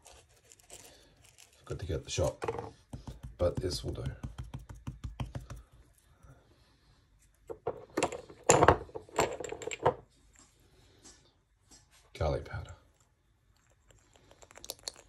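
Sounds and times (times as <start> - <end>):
knocks and rustles on cutting board: 2.4 - 5.6.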